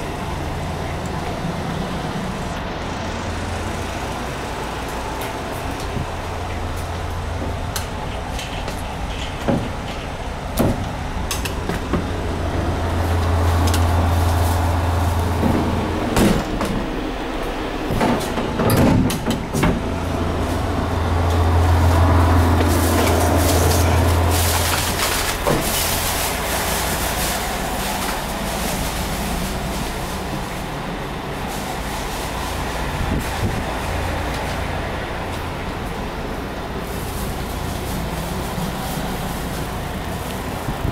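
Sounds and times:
train car low hum: 0.0 - 40.9
knocks and clatter: 7.4 - 12.1, 15.3 - 16.9, 17.9 - 19.9.

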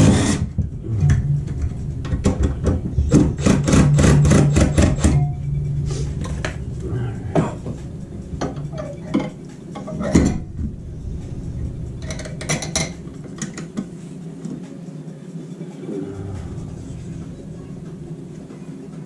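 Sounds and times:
low steady hum: 0.0 - 19.0
metal pipe clinking: 11.9 - 13.8.

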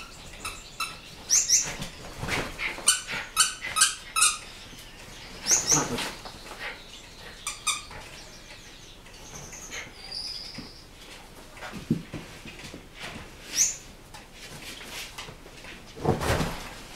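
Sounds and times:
dogs scuffling: 0.0 - 6.8.

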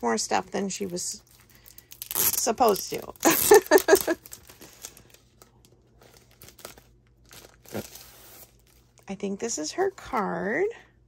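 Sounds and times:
paper packaging crinkling: 0.6 - 9.0.

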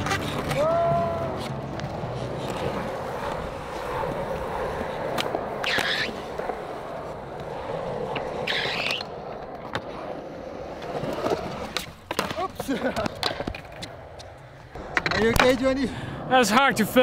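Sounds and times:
skateboard scrapes: 0.0 - 12.5
skateboard clicks and knocks: 0.0 - 15.8
skateboard wheels rolling on concrete: 0.0 - 17.0.

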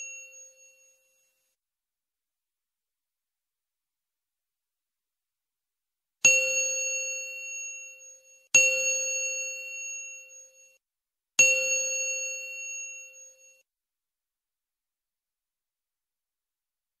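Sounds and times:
bell-like metal chime: 0.0 - 1.3.

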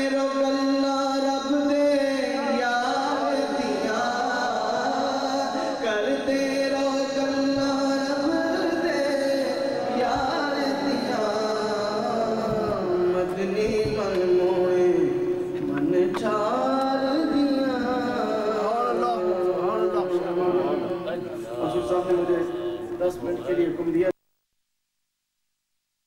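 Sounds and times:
man singing unaccompanied: 0.0 - 22.4.

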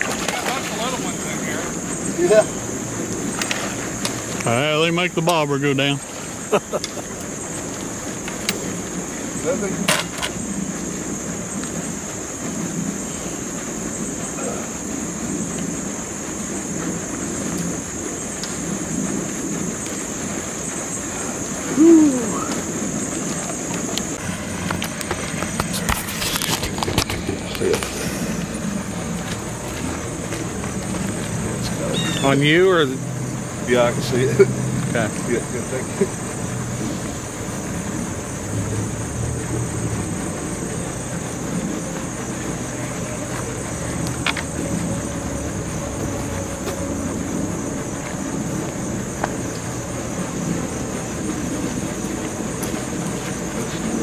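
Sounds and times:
high steady hiss: 0.0 - 54.0
outdoor background noise: 0.0 - 54.0
short hoot: 21.7 - 22.6.

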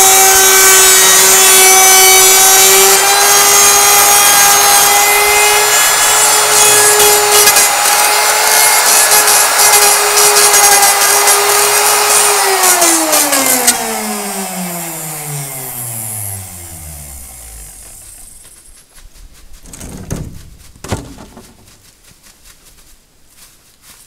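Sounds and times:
power tool motor spinning down: 0.0 - 18.5
sharp knocks: 19.6 - 21.8.

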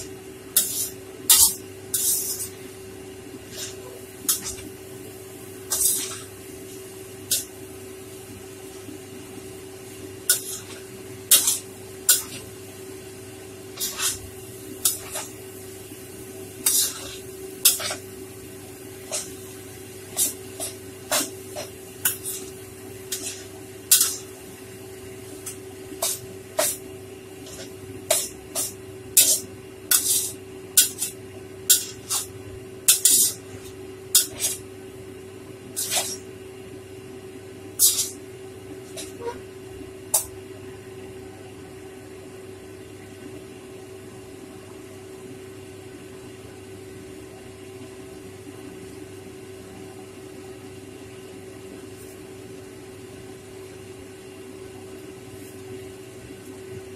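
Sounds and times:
low steady hum: 0.0 - 56.9
metal spatula scraping wok: 0.6 - 2.6, 3.5 - 4.7, 5.7 - 6.3, 10.3 - 12.5, 13.8 - 15.4, 16.6 - 18.0, 19.0 - 19.4, 20.1 - 22.5, 23.1 - 24.3, 25.4 - 26.8, 27.4 - 32.3, 32.9 - 34.6, 35.7 - 36.3, 37.8 - 38.2, 38.9 - 39.4.

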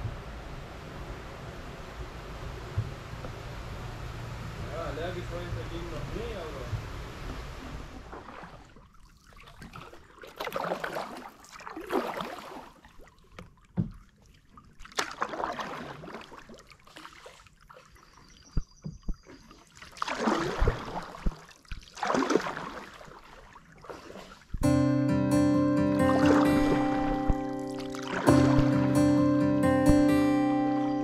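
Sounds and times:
paddle splashing in water: 5.4 - 24.7, 26.0 - 29.2.

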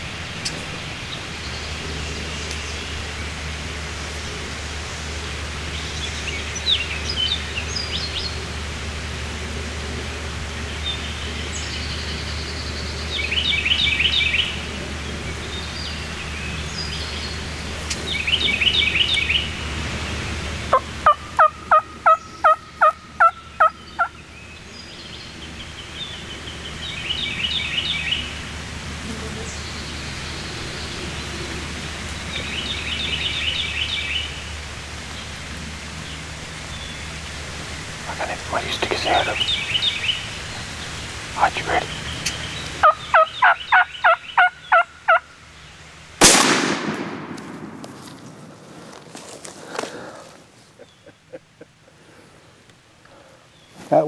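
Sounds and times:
turkey gobbling: 20.7 - 24.2, 41.4 - 45.3
turkey hen yelps: 42.8 - 45.2.

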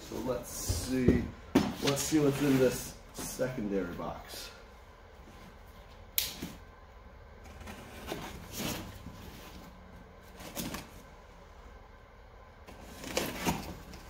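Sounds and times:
cardboard scraping and rustling: 1.7 - 3.4, 7.4 - 11.1, 12.6 - 14.0.

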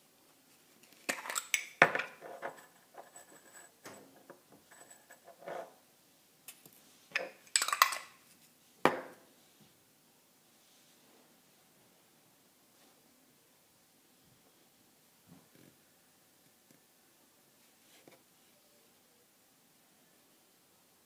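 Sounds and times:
glass jar and metal lid handled: 1.1 - 3.7, 7.2 - 8.2
metal pieces clinking against glass: 7.5 - 8.2.

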